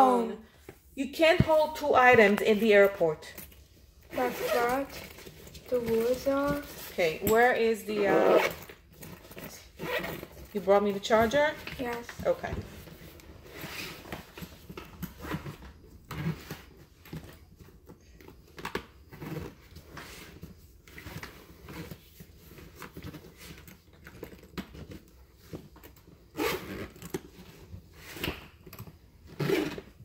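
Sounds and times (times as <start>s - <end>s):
handling rustles and clicks: 8.7s - 30.0s.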